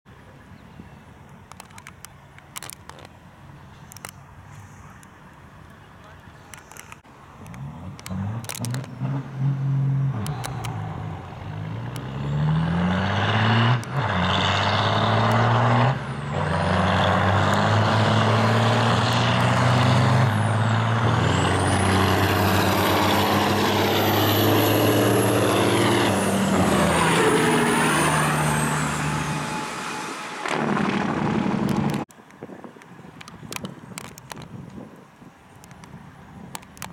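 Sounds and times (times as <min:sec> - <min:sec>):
truck diesel engines at full throttle: 0:03.5 - 0:32.1
high whistle: 0:28.0 - 0:30.5.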